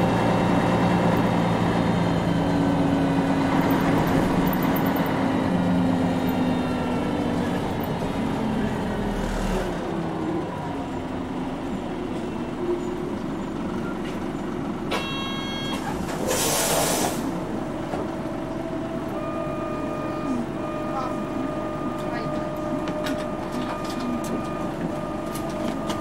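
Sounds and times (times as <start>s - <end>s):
bus diesel engine: 0.0s - 26.0s
road noise: 0.0s - 26.0s
compressed-air hiss: 16.3s - 17.3s.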